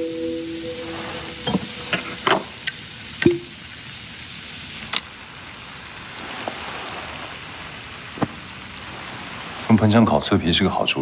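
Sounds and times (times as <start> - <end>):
meat sizzling in a frying pan: 0.2 - 5.0.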